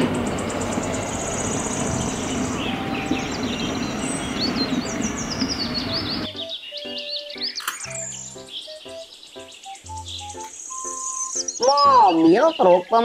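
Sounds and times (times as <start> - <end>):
concrete mixer truck running: 0.0 - 6.3
birds chirping: 0.0 - 13.0.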